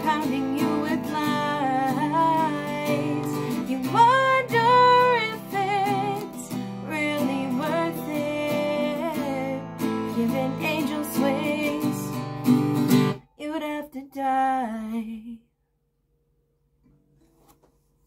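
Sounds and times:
woman singing with vibrato: 0:00.0 - 0:12.2, 0:13.3 - 0:15.5
acoustic guitar: 0:00.0 - 0:13.3.

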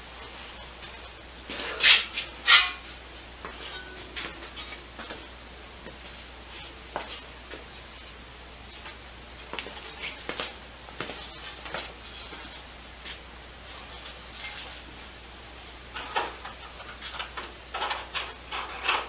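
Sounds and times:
metal tools clattering: 0:03.6 - 0:05.3.

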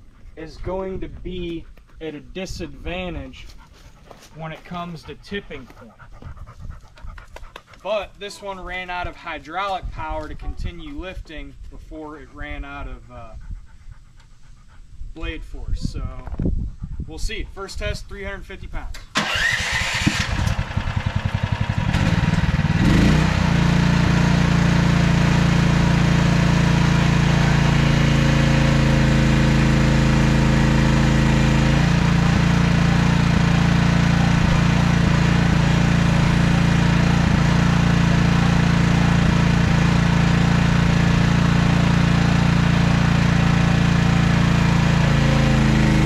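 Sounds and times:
excavator engine running: 0:19.2 - 0:46.0.

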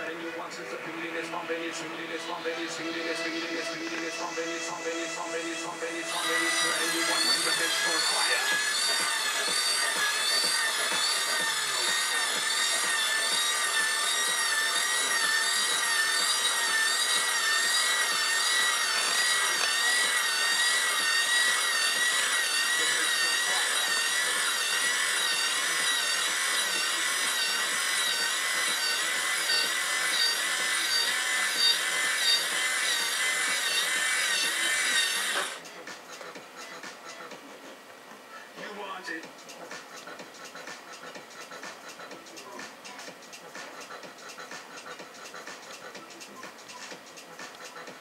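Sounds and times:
electric motor whining: 0:00.0 - 0:36.8.

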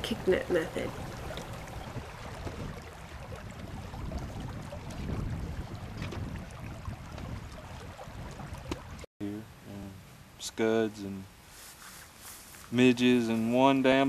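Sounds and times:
wind on microphone: 0:00.0 - 0:09.1
faint splashes or knocks: 0:00.8 - 0:09.0.

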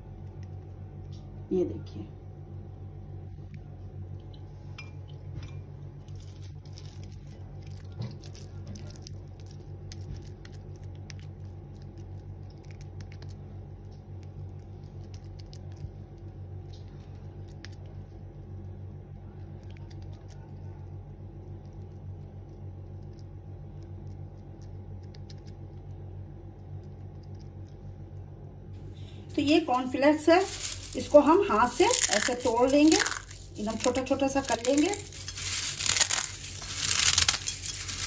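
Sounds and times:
steady low hum: 0:00.0 - 0:38.0
hands squelching raw meat: 0:30.3 - 0:38.0.

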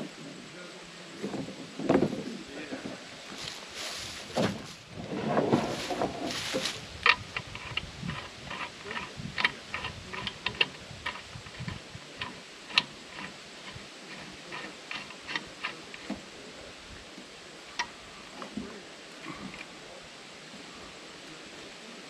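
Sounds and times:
hose rustling: 0:01.3 - 0:16.5
metal hose fittings clicking: 0:07.0 - 0:16.2.

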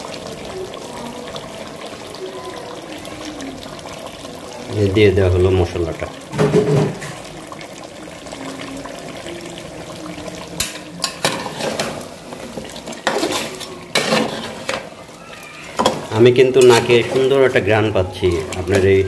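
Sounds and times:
metal spoon stirring in a pot: 0:10.4 - 0:19.0.

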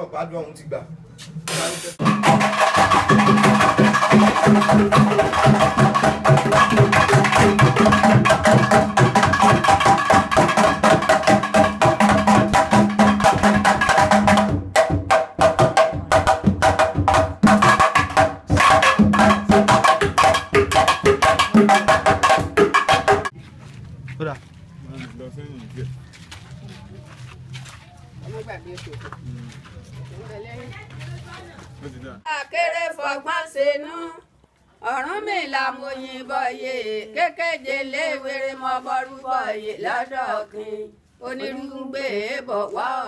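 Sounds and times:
drum ensemble playing fast rhythm: 0:01.4 - 0:23.3.

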